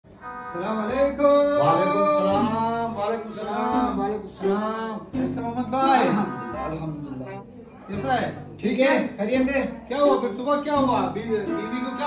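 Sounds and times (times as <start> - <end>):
man singing unaccompanied: 0.4 - 7.2.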